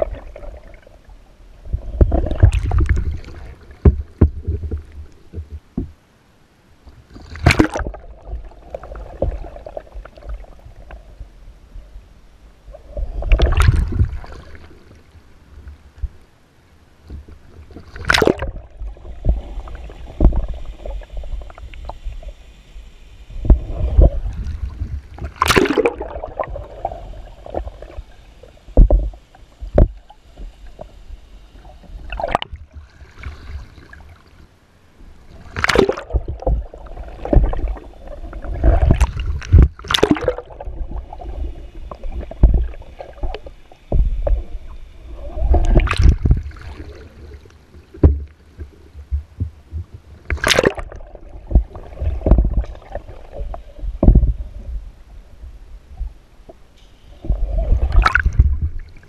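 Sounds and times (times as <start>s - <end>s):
muffled underwater rumble: 0.0s - 6.1s, 6.8s - 59.0s
water sloshing and gurgling: 0.0s - 6.1s, 6.8s - 16.2s, 17.0s - 59.0s
sharp water splashes: 7.3s - 8.1s, 17.9s - 18.6s, 25.3s - 26.8s, 32.1s - 32.6s, 35.5s - 37.8s, 38.6s - 40.7s, 50.3s - 53.0s, 57.9s - 58.6s.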